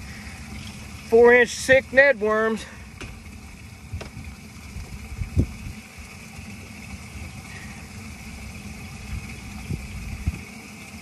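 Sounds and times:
motor humming: 0:00.0 - 0:11.0.

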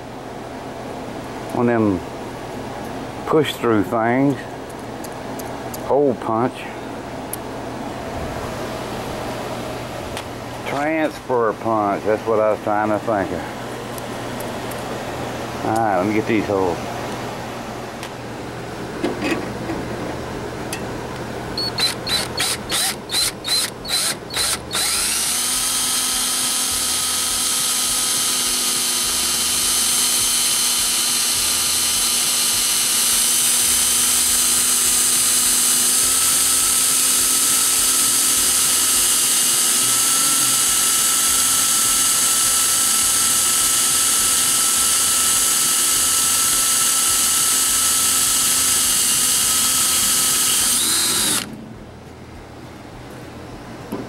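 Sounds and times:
cordless drill boring metal: 0:21.6 - 0:51.5.

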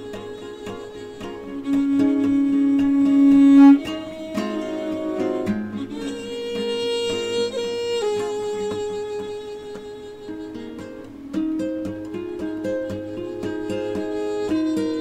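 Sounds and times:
long held notes: 0:00.0 - 0:11.0, 0:11.6 - 0:15.0
plucked guitar music: 0:00.0 - 0:15.0.

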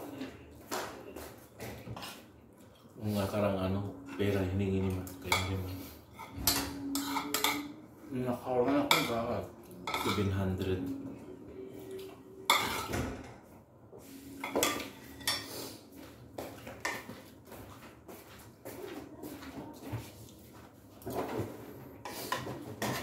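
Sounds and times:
cutlery clinking on plates: 0:05.0 - 0:07.8, 0:09.8 - 0:10.3, 0:12.5 - 0:13.1.

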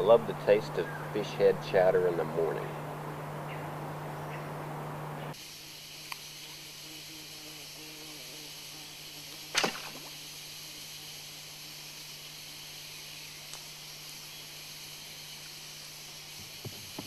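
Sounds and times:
steady high hiss: 0:00.0 - 0:17.0
bow string snap: 0:09.5 - 0:10.1.

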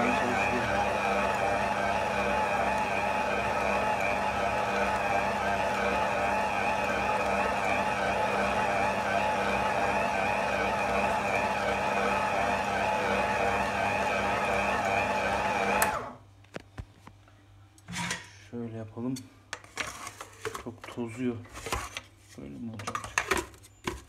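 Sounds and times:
stand mixer motor humming: 0:00.0 - 0:16.1.

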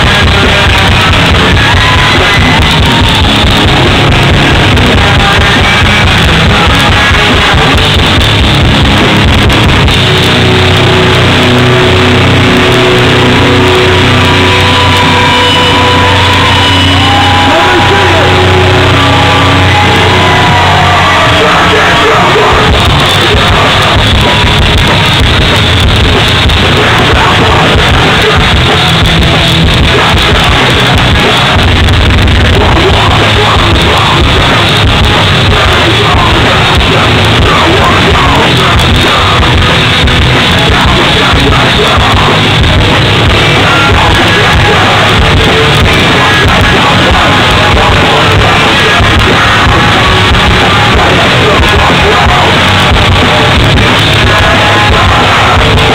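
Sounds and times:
drums: 0:00.0 - 0:55.9
electric guitars: 0:00.0 - 0:55.9
person yelling vocals: 0:13.8 - 0:24.0.

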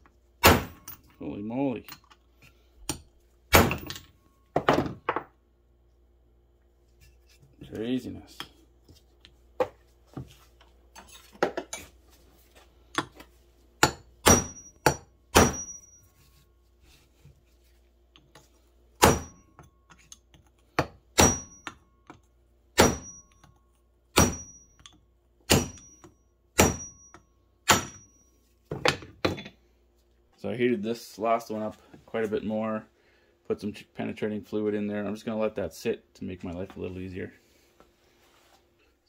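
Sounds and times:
hammer striking steel punch: 0:00.4 - 0:01.0, 0:02.9 - 0:04.0, 0:13.8 - 0:16.0, 0:19.0 - 0:19.7, 0:20.8 - 0:22.2, 0:22.8 - 0:23.5, 0:24.1 - 0:28.2.

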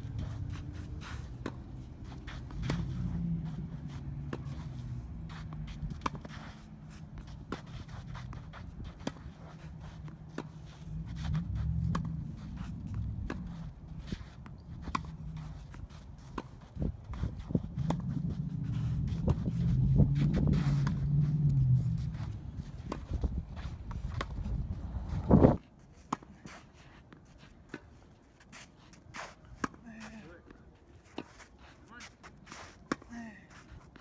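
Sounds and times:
scuffing footsteps on court: 0:00.0 - 0:34.0
tennis ball hits: 0:11.3 - 0:16.6
low rumble: 0:17.3 - 0:25.6.

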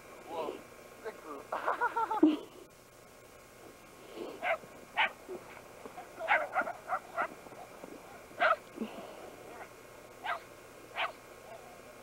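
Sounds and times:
dogs barking in sharp yips: 0:04.4 - 0:05.6, 0:06.2 - 0:07.4, 0:08.4 - 0:08.6, 0:10.2 - 0:11.2.

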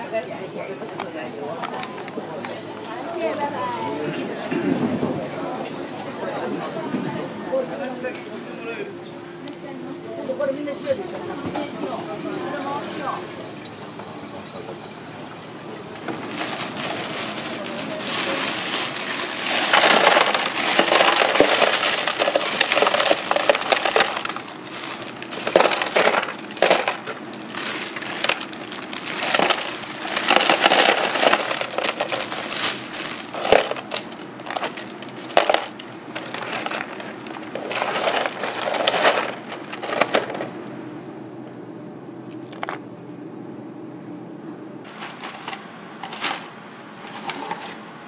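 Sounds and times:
crushed ice pouring into tub: 0:16.2 - 0:40.5, 0:44.9 - 0:46.5.

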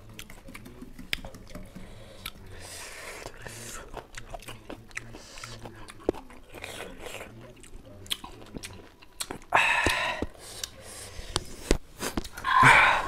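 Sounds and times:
wet chewing: 0:00.0 - 0:12.6
breathy burst: 0:12.4 - 0:13.0.

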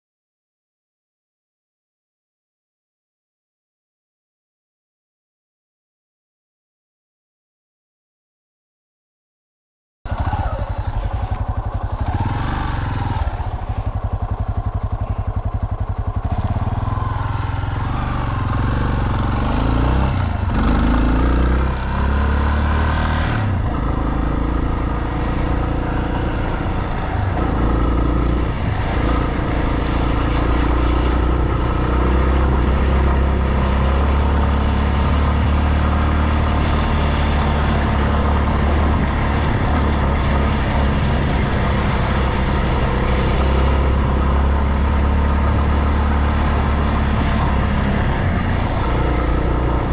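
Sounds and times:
motorcycle engine running: 0:10.1 - 0:49.9.

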